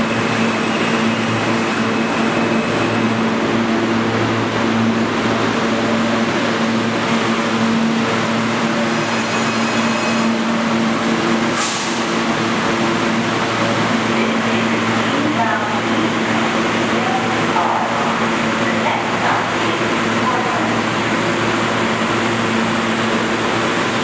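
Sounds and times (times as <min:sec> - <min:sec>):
subway train equipment humming: 0:00.0 - 0:24.0
hiss of air: 0:11.5 - 0:12.2.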